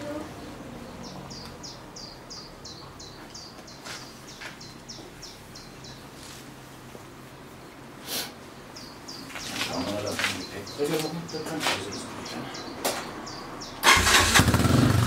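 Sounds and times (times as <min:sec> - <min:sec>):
small bird chirping: 0:00.0 - 0:06.4, 0:08.4 - 0:13.8.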